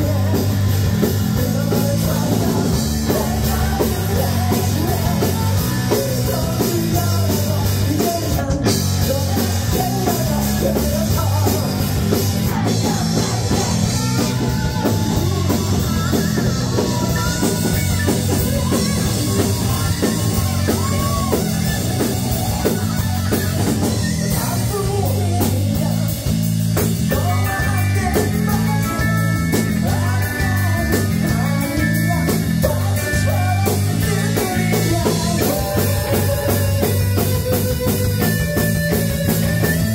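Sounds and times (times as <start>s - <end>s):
drums: 0.0s - 39.9s
electric bass: 0.0s - 39.9s
person singing: 0.0s - 39.9s.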